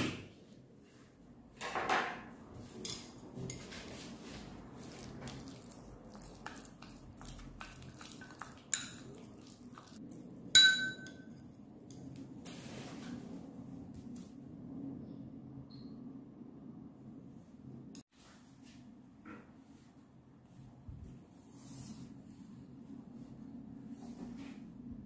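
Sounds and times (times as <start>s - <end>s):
chopsticks stirring in ceramic bowl: 2.6s - 12.4s
chopstick clinking bowl: 7.3s - 10.0s, 10.6s - 11.4s.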